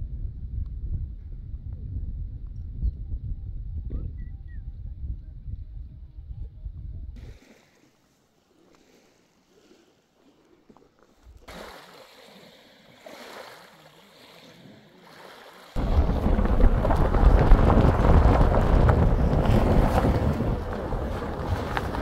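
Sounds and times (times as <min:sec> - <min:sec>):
wind buffeting microphone: 0:00.0 - 0:07.4, 0:15.8 - 0:22.0.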